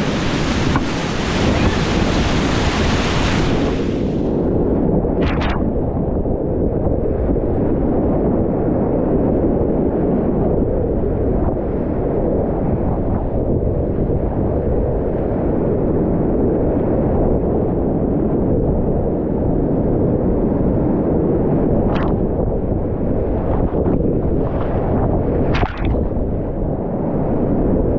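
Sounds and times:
muffled whitewater rushing: 0.0s - 8.0s, 21.6s - 27.9s.

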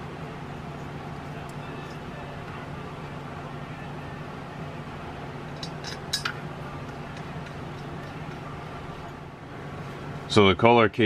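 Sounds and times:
steady low hum: 0.0s - 11.0s
metal bolts clinking: 5.5s - 8.4s.

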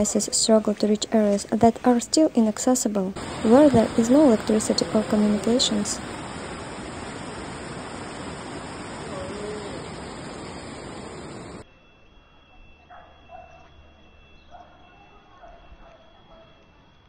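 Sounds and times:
floodwater rushing: 3.2s - 11.6s.

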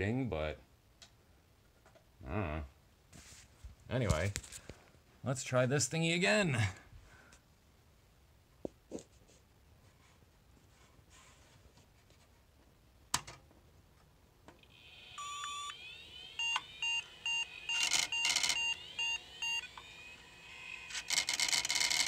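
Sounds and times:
hard drives whining: 14.5s - 22.0s
computer beeps: 14.8s - 15.8s, 16.4s - 19.8s.

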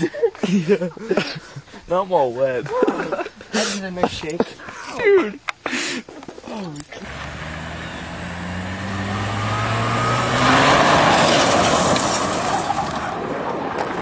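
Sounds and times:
car engine running hard: 7.0s - 11.7s
tyres spraying gravel: 7.0s - 13.2s.

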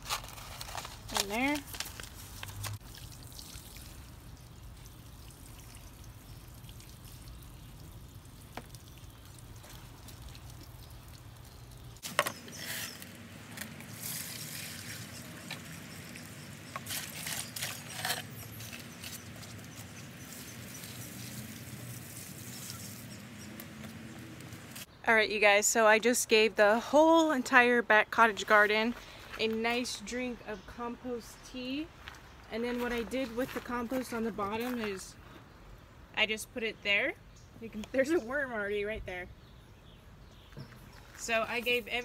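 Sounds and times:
liquid trickling: 2.1s - 12.1s, 13.8s - 17.6s.

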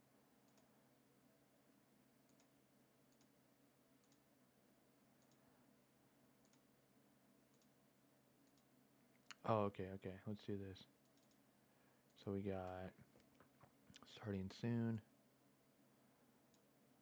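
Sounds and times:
low steady hum: 0.0s - 17.0s
computer mouse clicks: 0.4s - 0.7s, 2.2s - 3.4s, 4.0s - 4.3s, 5.2s - 5.4s, 6.4s - 6.7s, 7.5s - 7.8s, 8.4s - 9.4s, 11.0s - 11.4s, 16.5s - 16.7s.

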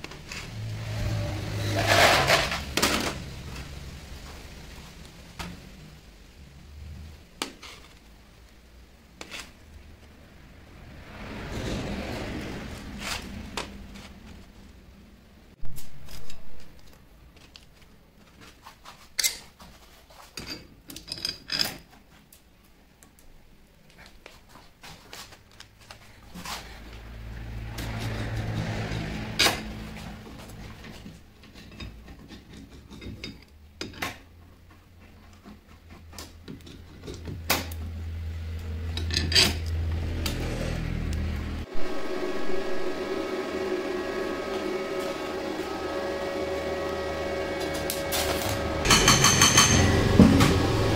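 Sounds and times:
low hum: 39.7s - 50.9s
metal parts clinking on table: 48.9s - 50.0s.

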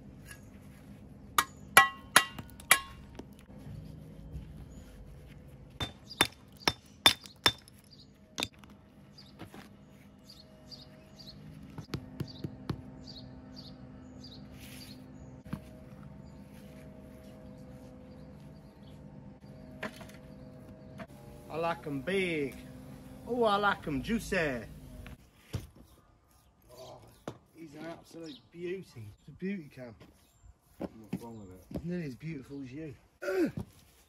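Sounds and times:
hammer striking stone: 1.4s - 3.1s, 5.8s - 8.7s.

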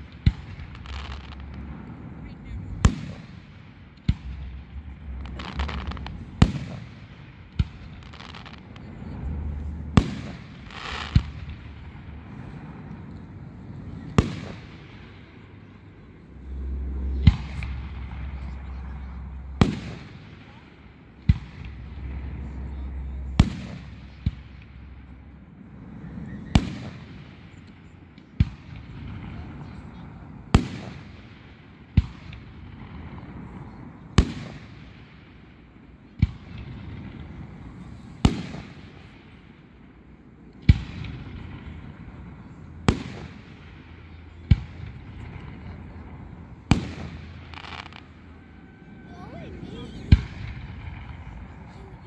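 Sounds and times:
firework hiss: 0.0s - 15.6s
firework shells booming: 0.0s - 25.5s, 34.2s - 48.5s
low rumble: 0.0s - 27.4s, 40.9s - 52.0s.

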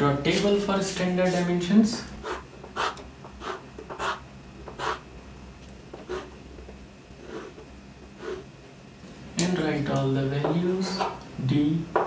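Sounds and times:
chalk scraping on chalkboard: 1.2s - 1.5s, 2.2s - 5.0s, 6.0s - 6.3s, 7.2s - 7.6s.

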